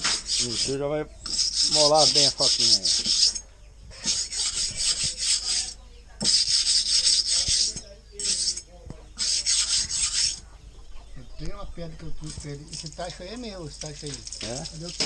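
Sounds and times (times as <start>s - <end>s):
knife scraping on sharpening stone: 1.3s - 3.4s, 4.0s - 8.6s.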